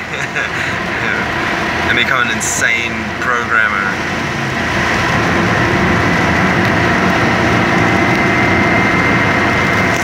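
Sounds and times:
vehicle rumbling: 0.0 - 10.0
high-pitched whine: 0.4 - 10.0.

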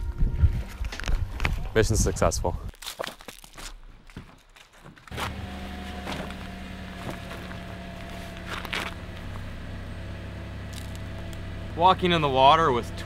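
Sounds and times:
footsteps crunching on gravel: 0.6 - 9.6, 10.7 - 11.4
car engine idling: 5.1 - 13.0.

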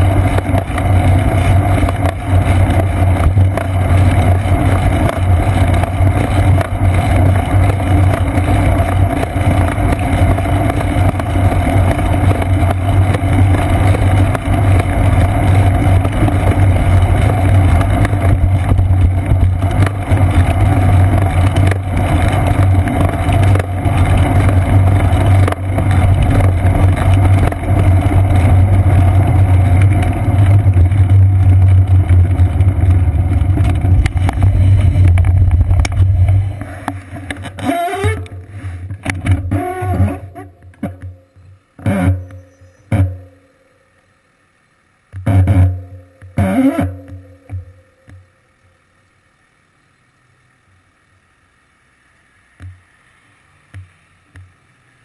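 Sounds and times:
low drone: 0.0 - 40.6
road rumble: 0.0 - 55.0.

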